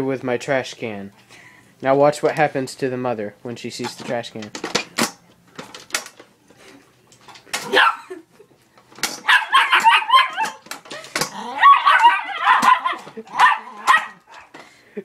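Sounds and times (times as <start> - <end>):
dog barking: 7.7 - 8.1, 9.2 - 10.6, 11.6 - 14.5.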